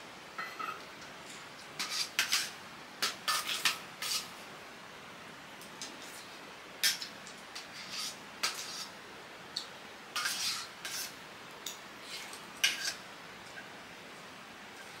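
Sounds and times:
metal utensils scraping a pot: 0:01.8 - 0:04.3, 0:07.6 - 0:08.9, 0:10.2 - 0:13.0.

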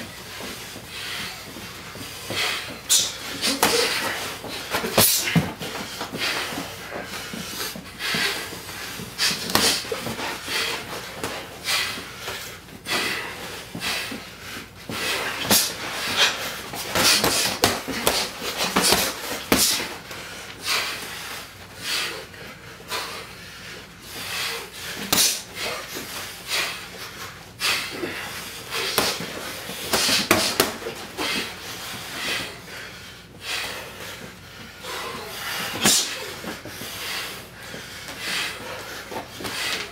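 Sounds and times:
sharp hissing breaths: 0:00.2 - 0:39.9
boxing glove punch impacts: 0:29.9 - 0:30.9.

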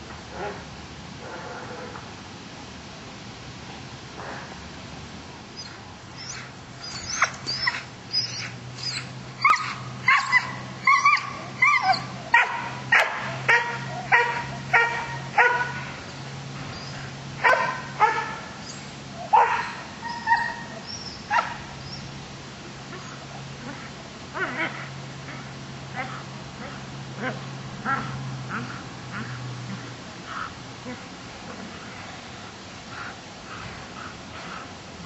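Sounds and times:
dog yelping: 0:05.6 - 0:15.8, 0:16.7 - 0:22.0
dog barking: 0:11.2 - 0:15.8, 0:17.4 - 0:18.4, 0:19.3 - 0:20.7, 0:21.3 - 0:21.7.

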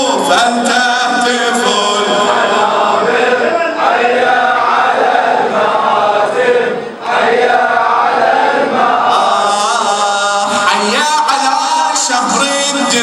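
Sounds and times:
man chanting into a microphone: 0:00.0 - 0:03.8, 0:09.1 - 0:13.0
congregation singing in chorus: 0:00.0 - 0:13.0.

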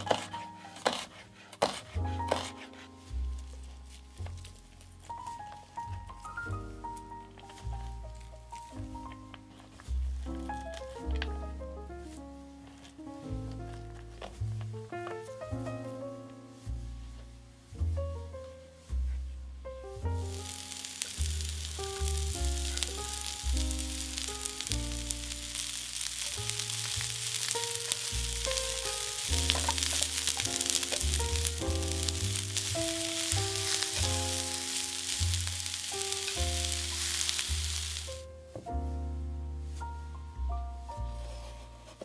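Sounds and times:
soft background music: 0:00.0 - 0:42.0
food sizzling in hot oil: 0:20.3 - 0:38.3.

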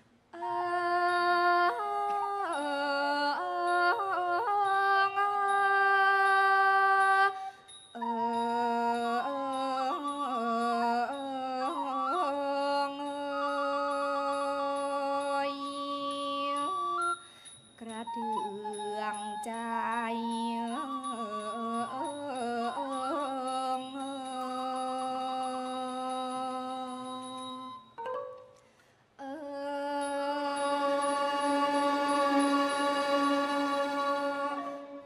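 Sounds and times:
woman singing long ornamented notes: 0:00.4 - 0:17.2, 0:17.8 - 0:28.4, 0:29.2 - 0:35.0.

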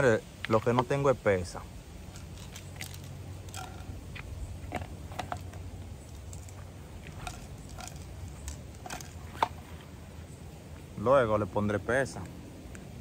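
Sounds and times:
plastic bottle and bag rustling: 0:02.1 - 0:09.9.

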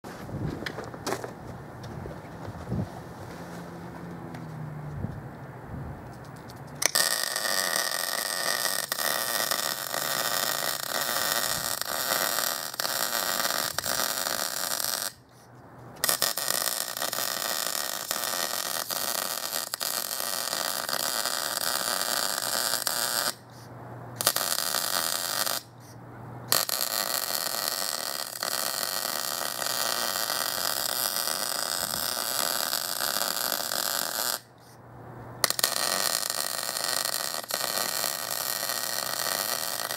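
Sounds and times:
welding arc sizzling: 0:06.8 - 0:15.2, 0:16.0 - 0:23.4, 0:24.2 - 0:25.7, 0:26.5 - 0:34.5, 0:35.4 - 0:39.9.

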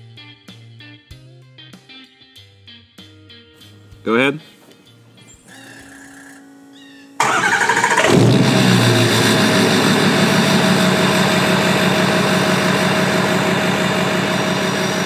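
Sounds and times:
engine starting and running: 0:07.2 - 0:15.0.

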